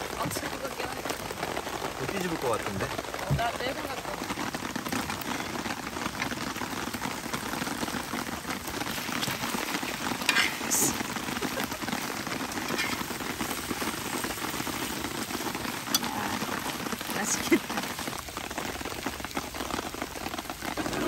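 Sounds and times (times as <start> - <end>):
pancake sizzling in oil: 0.7 - 21.0
metal spatula scraping pan: 10.2 - 10.7, 12.7 - 13.2.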